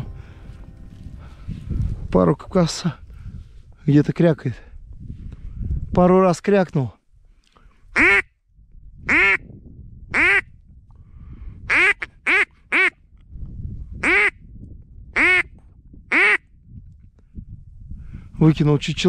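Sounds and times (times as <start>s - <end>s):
duck call quacks: 8.0s - 8.3s, 9.1s - 9.4s, 10.2s - 10.4s, 11.7s - 13.0s, 14.0s - 14.3s, 15.2s - 15.4s, 16.1s - 16.4s.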